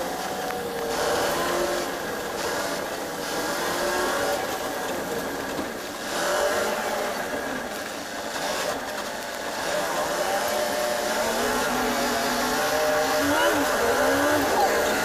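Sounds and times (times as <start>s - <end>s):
bus engine running: 0.0s - 15.0s
road noise hiss: 0.0s - 15.0s.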